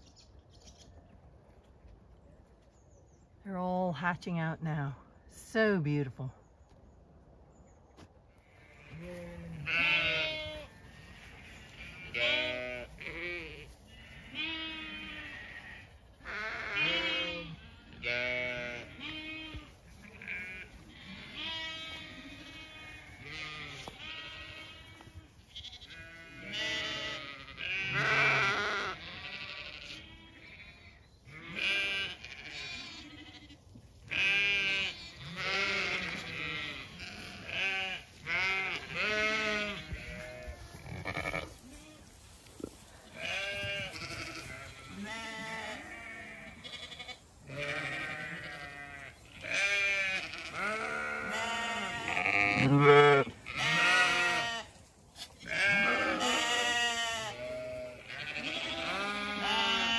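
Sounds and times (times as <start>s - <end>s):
sheep and lambs bleating: 8.3s - 59.9s.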